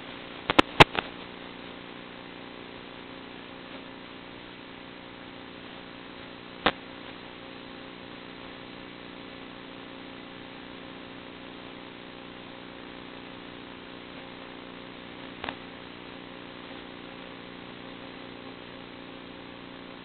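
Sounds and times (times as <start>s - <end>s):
constant hiss: 0.0s - 20.0s
sharp click: 0.5s - 1.1s, 15.4s - 15.6s.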